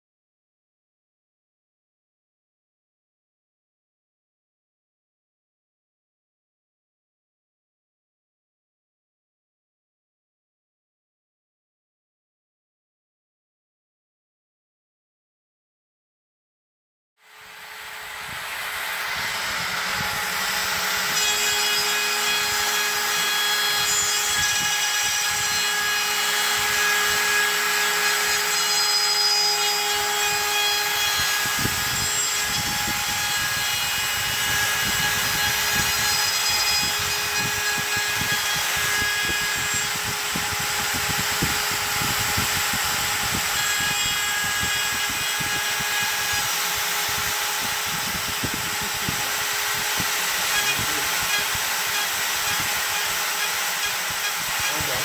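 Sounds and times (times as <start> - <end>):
router spindle running: 17.2 - 55.0
rough rattling cutting noise: 46.3 - 55.0.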